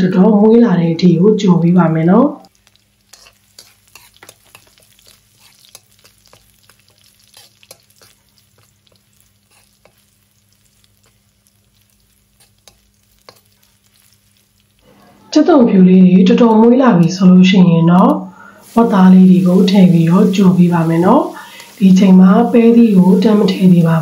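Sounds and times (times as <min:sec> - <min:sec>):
garlic sizzling in oil: 0:00.0 - 0:24.0
metal spoon scraping a wok: 0:03.1 - 0:10.1, 0:12.4 - 0:13.5.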